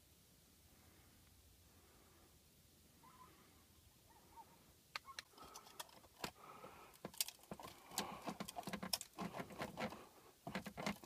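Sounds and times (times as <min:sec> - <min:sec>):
hands tapping and scraping metal box: 0:07.0 - 0:11.0.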